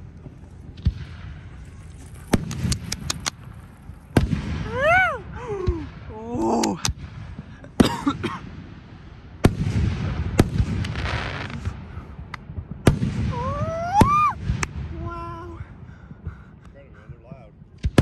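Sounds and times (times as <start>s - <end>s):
fireworks bursting with sharp bangs: 0.0s - 16.6s, 17.6s - 18.0s
steady low rumble: 0.0s - 18.0s.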